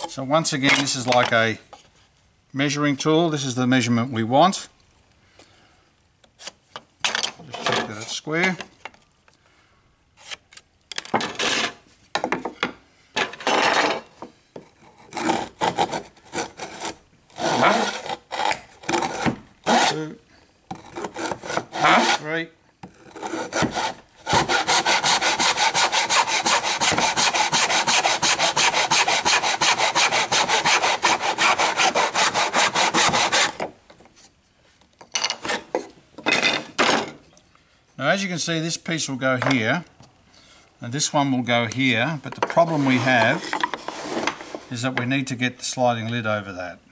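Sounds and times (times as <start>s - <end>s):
hand saw cutting wood: 14.8s - 22.3s, 22.9s - 33.7s, 42.6s - 44.5s.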